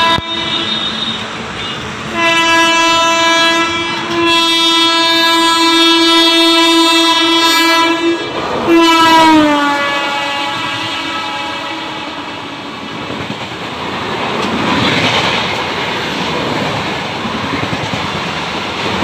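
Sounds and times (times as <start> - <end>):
train horn blasts: 0.0 - 12.7
train rumble: 0.0 - 19.0.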